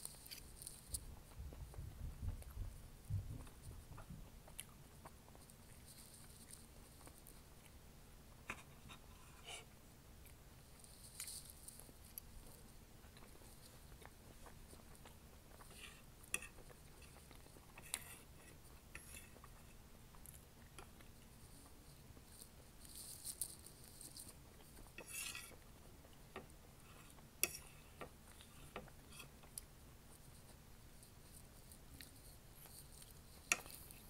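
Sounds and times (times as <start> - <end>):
chewing and mouth sounds: 0.1 - 7.8
fork scraping ceramic plate: 8.5 - 9.7, 17.8 - 19.5, 24.9 - 25.6, 26.9 - 29.4.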